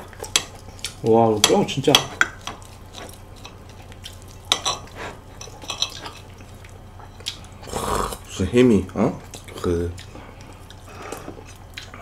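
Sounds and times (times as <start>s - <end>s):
chopsticks clicking on plates: 0.1s - 7.4s.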